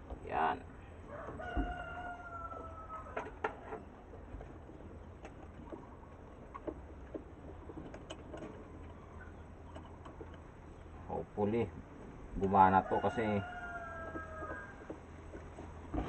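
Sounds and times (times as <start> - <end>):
small metal clicks and knocks: 3.1 - 10.5.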